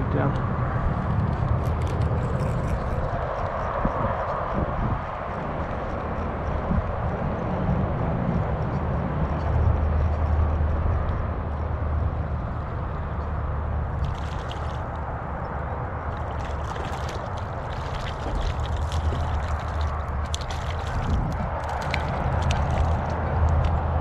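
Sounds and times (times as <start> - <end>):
steady low rumble: 0.0 - 24.0
fish splashing in water: 13.9 - 15.1, 16.0 - 23.7.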